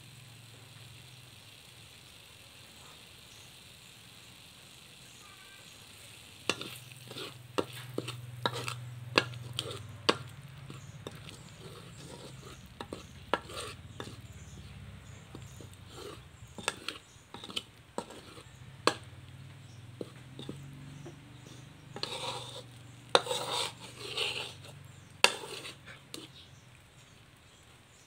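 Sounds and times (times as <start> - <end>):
metal spatula scraping wok: 5.2 - 26.7.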